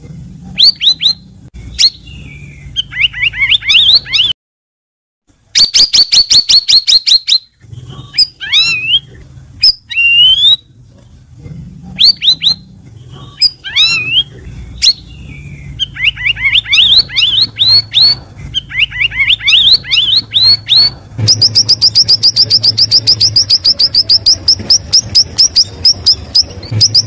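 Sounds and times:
bird singing whistled phrases: 0:00.6 - 0:04.3, 0:08.2 - 0:10.6, 0:13.4 - 0:27.0.

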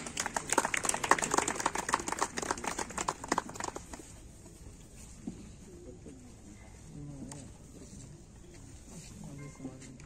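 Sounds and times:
crowd applauding: 0:00.0 - 0:04.2.

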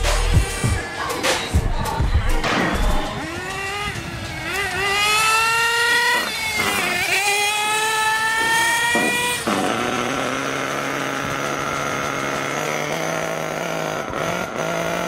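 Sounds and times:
toy car motor whining: 0:03.2 - 0:15.0.

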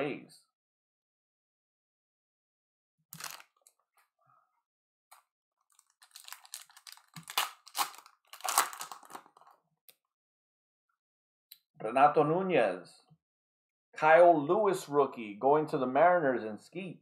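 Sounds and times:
wrapper rustle: 0:03.2 - 0:03.6, 0:05.7 - 0:09.5
wrapper tearing and crinkling: 0:03.2 - 0:03.6, 0:05.7 - 0:09.5.

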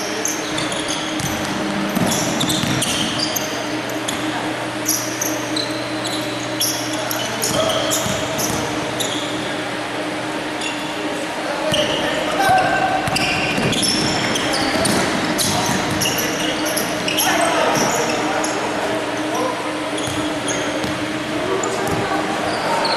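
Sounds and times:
sneakers squeaking on court: 0:00.0 - 0:09.5, 0:10.6 - 0:11.0, 0:13.0 - 0:18.7, 0:19.9 - 0:22.9
basketball bouncing: 0:01.2 - 0:03.0, 0:07.5 - 0:08.7.

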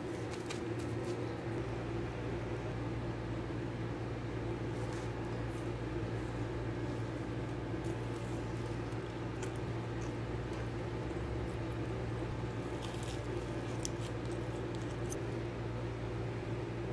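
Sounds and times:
kitchen appliance humming: 0:04.0 - 0:16.9
soft squishing of donut tearing: 0:04.6 - 0:15.8.

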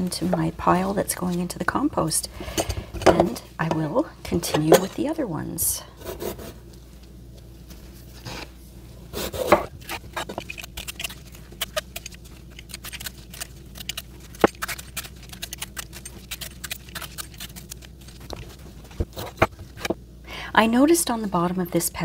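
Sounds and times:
pepper skin peeling crackles: 0:09.7 - 0:19.9.

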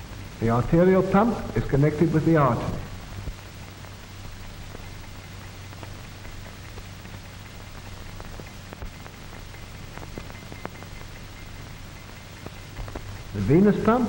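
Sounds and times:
film soundtrack hiss: 0:00.0 - 0:14.0
low hum: 0:00.0 - 0:14.0
faint clicks and pops: 0:02.9 - 0:14.0.

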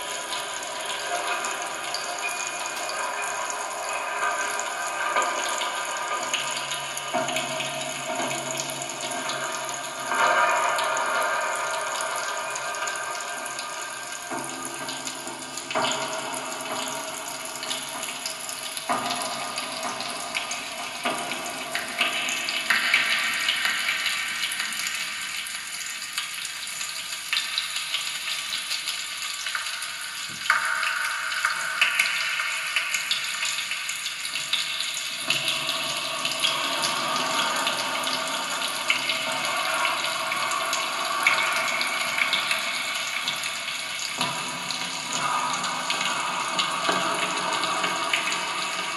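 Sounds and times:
hissing crackling ambient piece: 0:35.0 - 0:48.9.

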